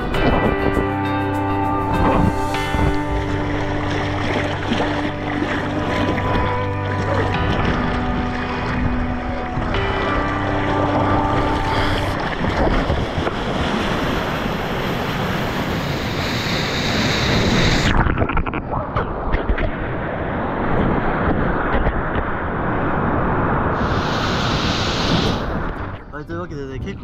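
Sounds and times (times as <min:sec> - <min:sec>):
surf and rushing water splashing: 0:00.0 - 0:27.0
wind buffeting microphone: 0:00.0 - 0:27.0.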